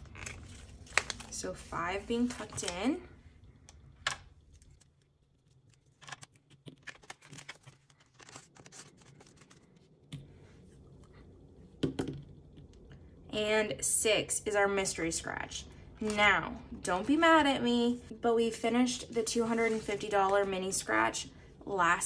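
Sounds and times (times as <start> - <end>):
paper envelope and banknotes rustling: 0.0 - 3.0, 4.5 - 10.0, 19.0 - 20.6.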